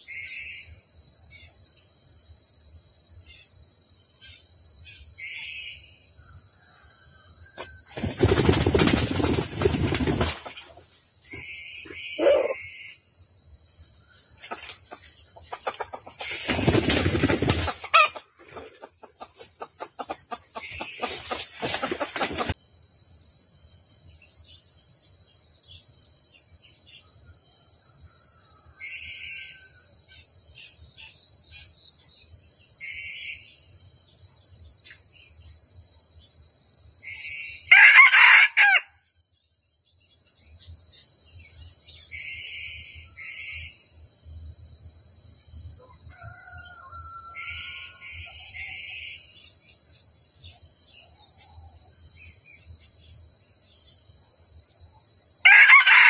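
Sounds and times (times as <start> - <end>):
rooster crowing: 6.3 - 8.0, 12.0 - 12.7, 17.8 - 18.3, 37.6 - 39.0, 45.8 - 49.2, 55.4 - 56.0
rustling noise: 20.8 - 22.6.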